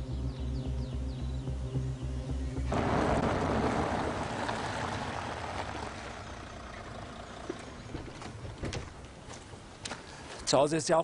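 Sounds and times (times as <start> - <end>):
car engine and tyre noise: 2.4 - 10.3.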